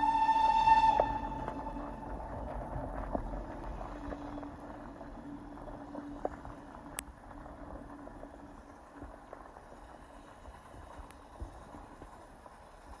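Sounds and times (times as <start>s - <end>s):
distant steam locomotive exhaust: 0.0s - 2.6s.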